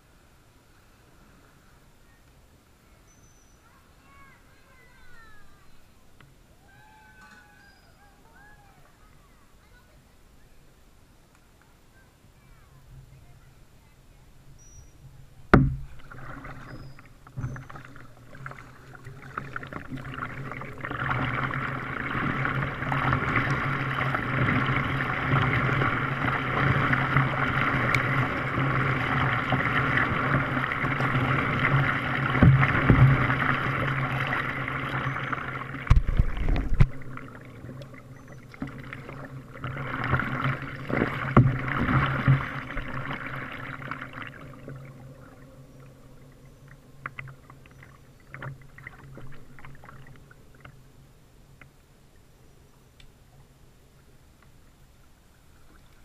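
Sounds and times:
paddle splashing water: 0:14.4 - 0:51.8
low bump: 0:15.5 - 0:17.6.

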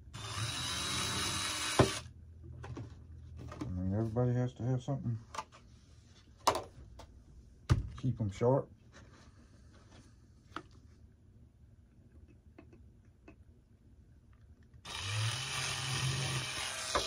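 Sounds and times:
cordless drill drilling plastic: 0:00.2 - 0:02.1, 0:14.8 - 0:17.0.

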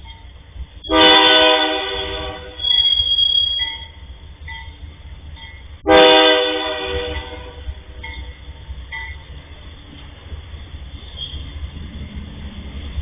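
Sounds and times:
train rumbling: 0:00.0 - 0:13.0
train horn blast: 0:00.8 - 0:03.5, 0:05.8 - 0:07.9.

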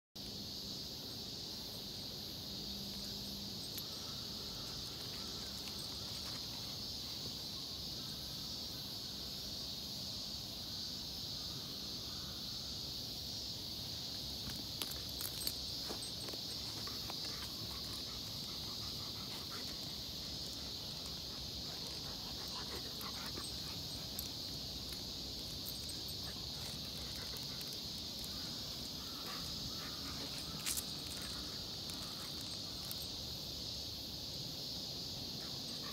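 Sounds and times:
insects chirping: 0:00.2 - 0:35.9.

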